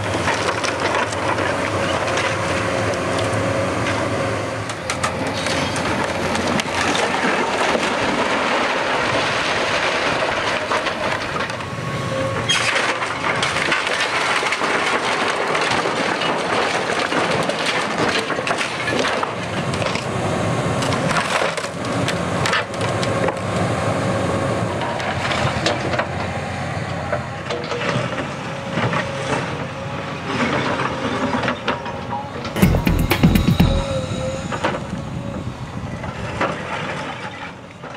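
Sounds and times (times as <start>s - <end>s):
excavator engine running: 32.6s - 35.7s.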